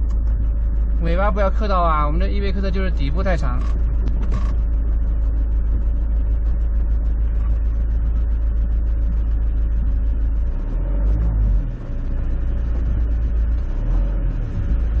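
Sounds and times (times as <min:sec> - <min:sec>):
gravel rattling ticks: 0:00.0 - 0:10.3
motorhome engine and tyres rumbling: 0:00.0 - 0:15.0.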